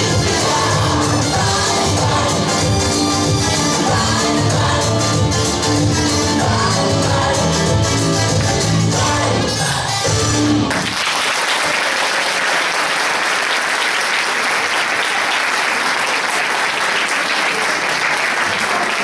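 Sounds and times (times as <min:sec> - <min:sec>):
recorded music: 0:00.0 - 0:11.0
audience applauding: 0:10.7 - 0:19.0.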